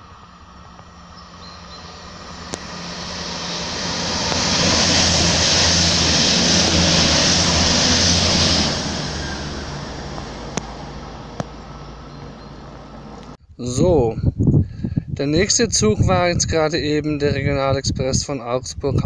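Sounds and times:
rail hiss: 0.0s - 13.4s
train engine hum: 0.0s - 13.4s.

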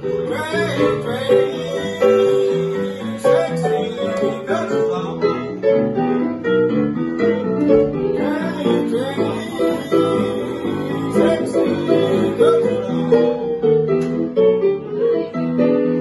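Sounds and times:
man singing: 0.0s - 5.6s, 8.0s - 13.6s
piano chords and bass notes: 0.0s - 16.0s.

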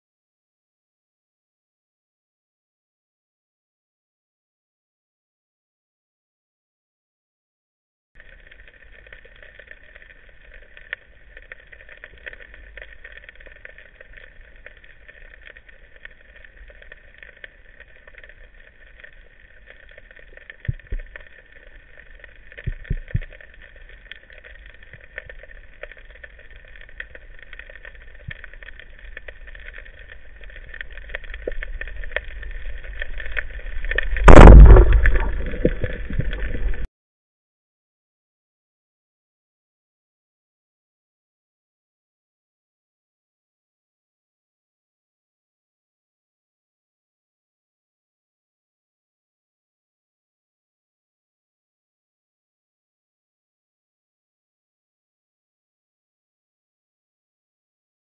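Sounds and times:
faint clicks: 8.2s - 34.3s
underwater background noise: 8.2s - 36.9s
speargun firing crack: 34.3s - 35.4s.

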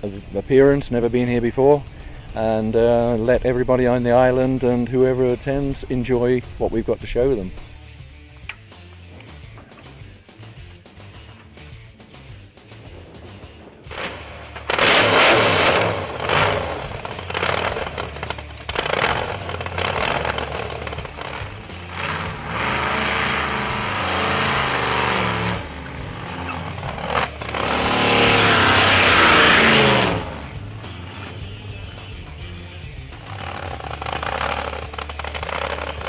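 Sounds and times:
engine starting and revving: 12.9s - 36.0s.

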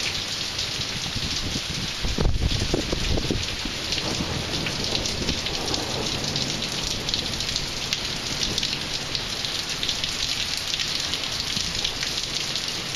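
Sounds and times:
heavy rain falling: 0.0s - 12.9s
thunder rumble: 1.1s - 9.2s.

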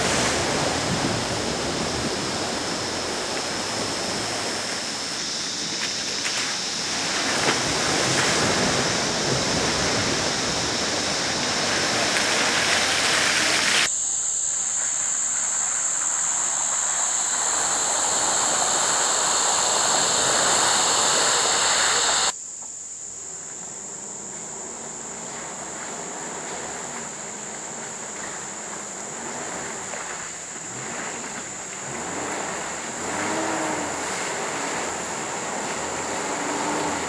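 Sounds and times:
rushing river water: 0.0s - 13.9s, 15.4s - 22.4s, 25.4s - 37.0s
vehicle splashing through puddle: 0.0s - 13.9s, 25.1s - 37.0s
insects buzzing: 0.0s - 37.0s.

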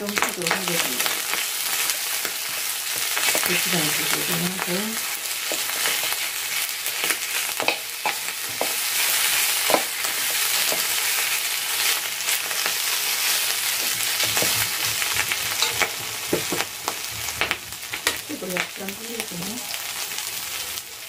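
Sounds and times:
meat sizzling on griddle: 0.0s - 21.0s
metal utensil scraping pan: 3.2s - 11.2s, 15.5s - 16.6s.

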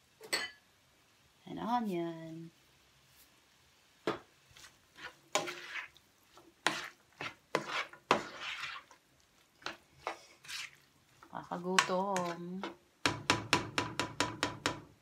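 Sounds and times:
spatula scraping a frying pan: 4.6s - 13.2s.

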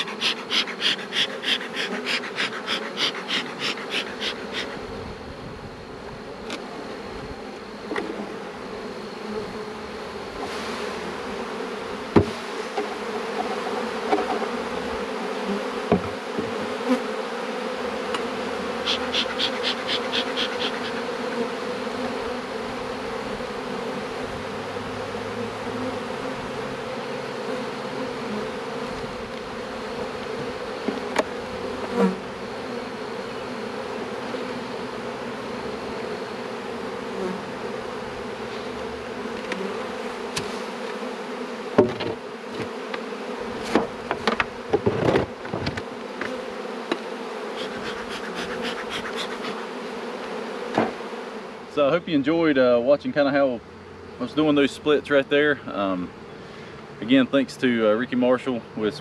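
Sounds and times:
bellows bee smoker puffs: 0.0s - 5.3s, 10.3s - 11.4s, 12.2s - 24.3s, 38.2s - 41.3s, 46.1s - 51.0s, 55.6s - 57.2s
honeybees buzzing: 0.0s - 59.0s
knocks on wooden hive boxes: 12.1s - 14.6s, 15.8s - 16.7s, 41.7s - 43.0s, 43.6s - 47.8s, 50.7s - 51.1s.

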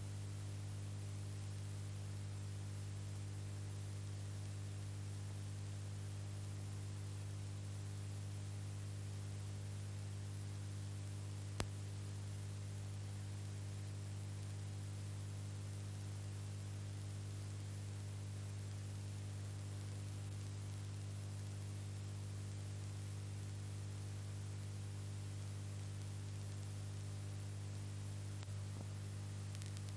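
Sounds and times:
constant hiss: 0.0s - 29.9s
electrical hum: 0.0s - 29.9s
sharp click: 29.5s - 29.9s.

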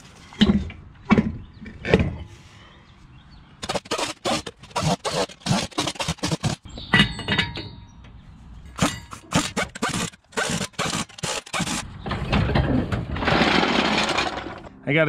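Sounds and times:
pneumatic impact wrench: 3.6s - 6.7s, 8.8s - 11.8s.

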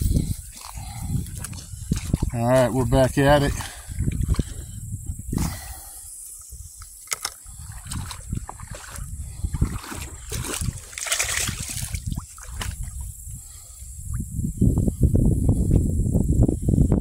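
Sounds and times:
water splashing around legs: 0.5s - 4.6s, 7.0s - 13.0s.

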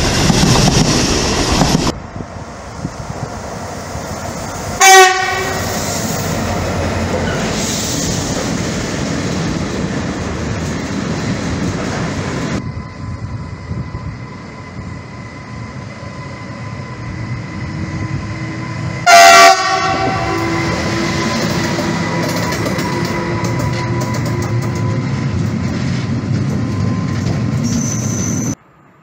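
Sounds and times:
freight train rumbling past: 0.0s - 29.0s
locomotive horn blasts: 4.8s - 5.8s, 19.0s - 21.0s.

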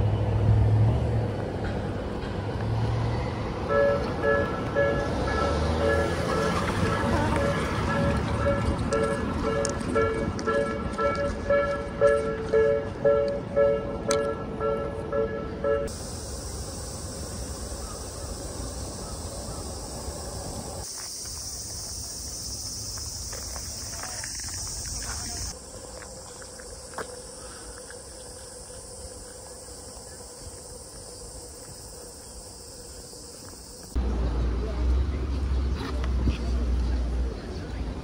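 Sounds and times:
cicadas buzzing: 3.5s - 12.1s, 15.8s - 34.2s.

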